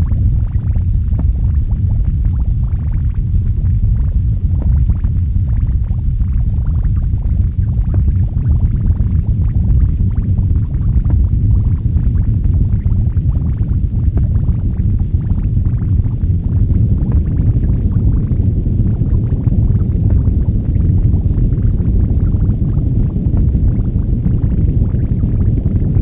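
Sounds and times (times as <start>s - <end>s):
noise music rumble and crackling: 0.0s - 26.0s.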